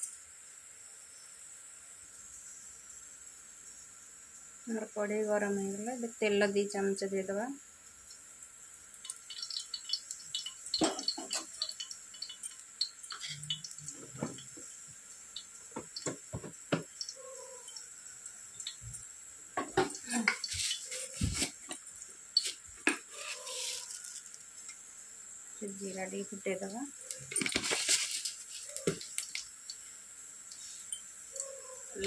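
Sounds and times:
faint steady hiss: 0.0 - 32.0
hot oil crackling: 7.8 - 31.6.

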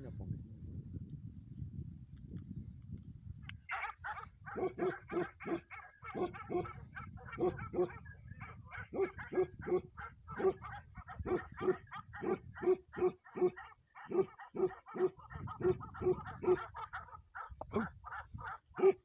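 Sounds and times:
dog barking: 4.5 - 16.8, 18.8 - 19.0.

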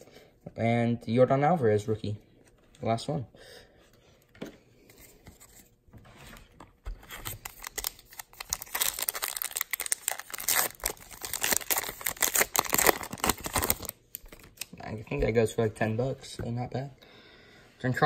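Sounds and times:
foil wrapper crinkling and tearing: 7.2 - 14.8.

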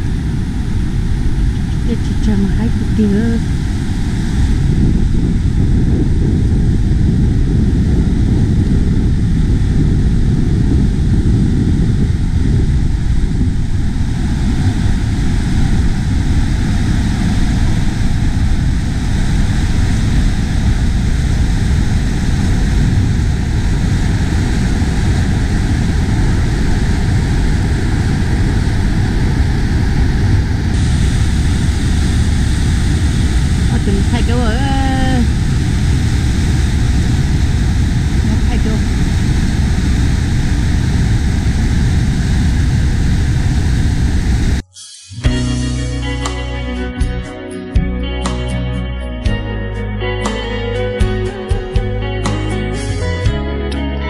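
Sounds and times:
water rushing over a spillway: 12.2 - 44.6.

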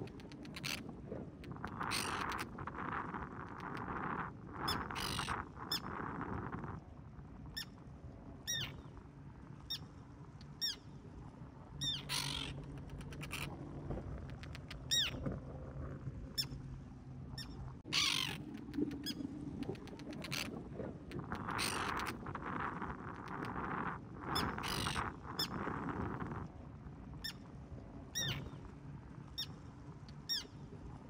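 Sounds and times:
wind rumble on microphone: 0.0 - 31.0
terns alarm calls: 11.8 - 12.5, 17.9 - 18.4, 24.4 - 25.5.

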